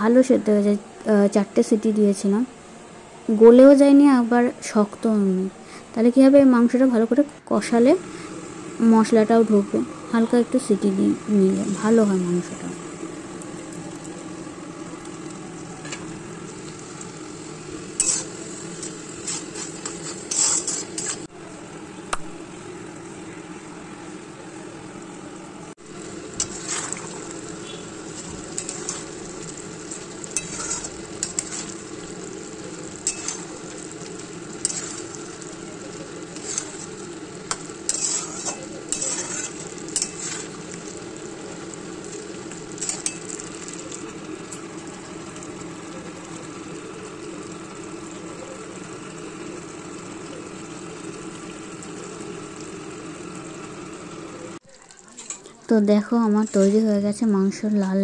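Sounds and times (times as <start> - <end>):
meat sizzling in oil: 7.9 - 21.3, 25.8 - 57.7
spatula scraping and clinking on pan: 18.0 - 18.3, 19.2 - 21.3, 30.3 - 31.7, 33.0 - 33.5, 34.6 - 35.0, 37.5 - 40.6.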